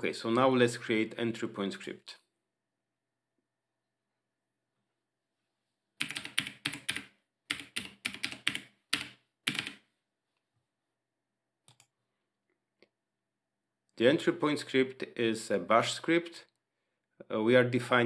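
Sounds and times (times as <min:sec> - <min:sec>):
typing on a keyboard: 0:06.0 - 0:09.8.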